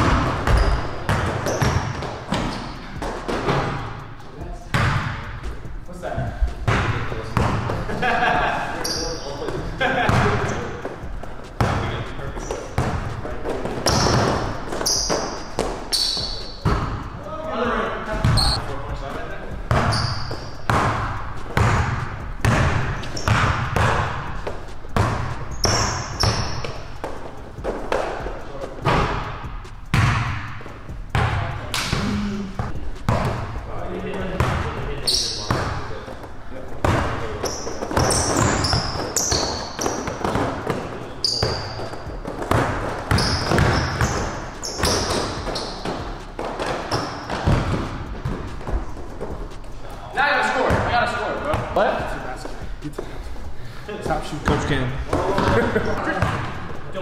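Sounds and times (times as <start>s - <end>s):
basketball bouncing on wooden floor: 0.0s - 4.1s, 4.7s - 7.9s, 9.8s - 17.1s, 19.6s - 33.6s, 34.2s - 35.8s, 36.8s - 49.7s, 54.5s - 56.8s
sneaker squeaks: 0.0s - 7.8s, 8.8s - 17.1s, 18.2s - 18.7s, 19.7s - 33.6s, 34.4s - 49.8s.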